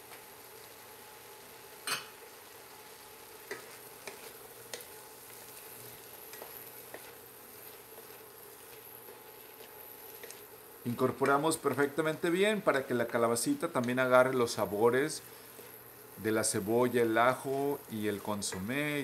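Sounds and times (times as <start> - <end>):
vegetables sizzling in a pan: 0.0 - 19.0
wooden spoon scraping a pan: 3.4 - 12.0.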